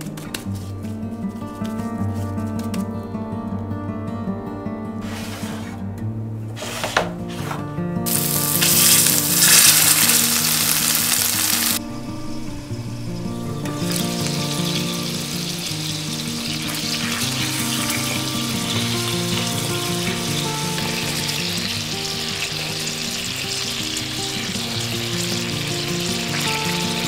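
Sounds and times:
patties sizzling in a pan: 0:08.1 - 0:11.8, 0:14.6 - 0:27.0.

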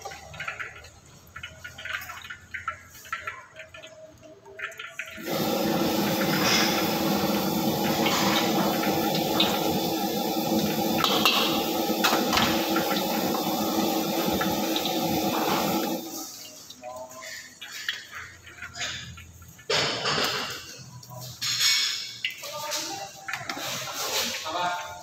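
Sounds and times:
gas burner roaring: 0:05.2 - 0:16.4.

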